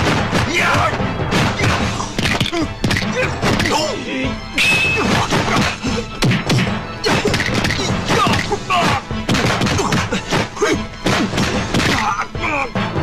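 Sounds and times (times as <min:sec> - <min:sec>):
film score music: 0:00.0 - 0:13.0
fighters shouting: 0:00.4 - 0:06.2, 0:07.0 - 0:12.8
punch impacts: 0:09.2 - 0:12.0.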